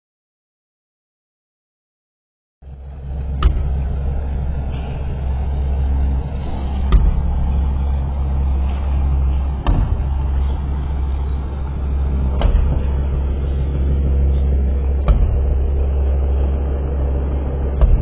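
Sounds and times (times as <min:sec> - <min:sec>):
heavy machinery engine rumbling: 0:02.6 - 0:18.0
sharp knock: 0:03.4 - 0:03.8, 0:09.6 - 0:10.2, 0:12.4 - 0:13.0, 0:15.0 - 0:15.7, 0:17.8 - 0:18.0.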